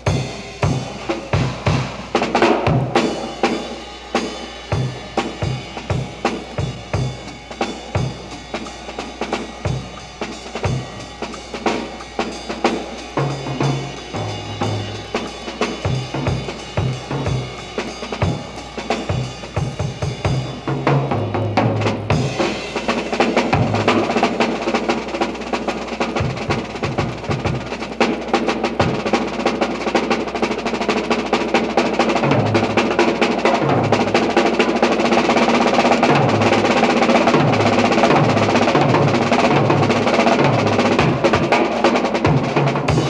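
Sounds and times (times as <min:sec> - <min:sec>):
low bass notes: 0:00.0 - 0:24.4
school band music: 0:00.0 - 0:43.0
snare and bass drum rolls: 0:00.0 - 0:43.0.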